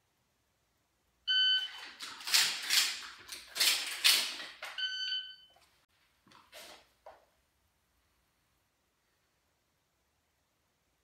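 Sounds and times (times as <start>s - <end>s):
shot timer beep: 4.8s - 5.5s.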